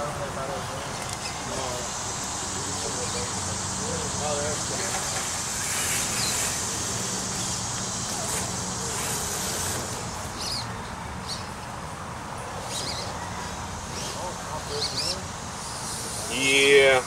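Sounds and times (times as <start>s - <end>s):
high insect buzz: 1.2s - 10.7s.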